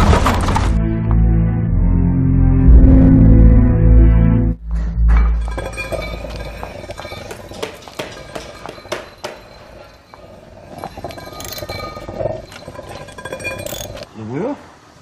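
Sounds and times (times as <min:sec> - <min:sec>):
sledgehammer scraping along floor: 0:04.7 - 0:14.1.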